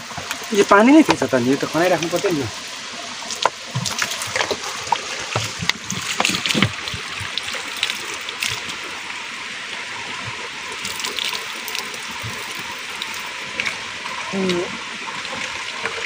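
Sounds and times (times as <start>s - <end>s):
water splashing onto rock: 3.2s - 9.0s, 10.2s - 16.0s.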